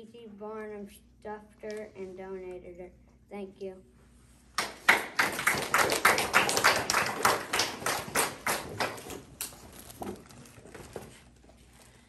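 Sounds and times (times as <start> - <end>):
audience applauding: 4.6 - 9.5.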